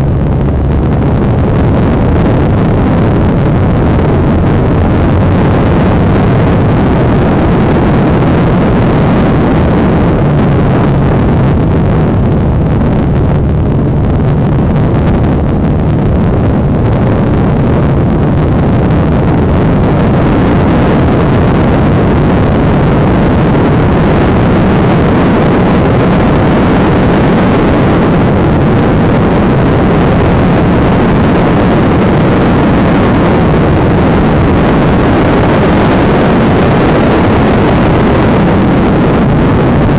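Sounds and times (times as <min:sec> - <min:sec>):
motorcycle engine riding at speed: 0:00.0 - 0:39.9.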